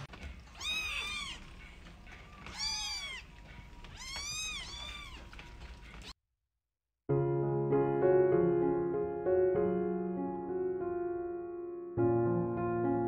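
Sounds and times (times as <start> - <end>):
kitten meowing: 0.5 - 1.4, 2.4 - 3.3, 4.0 - 5.4
piano music: 7.1 - 13.0.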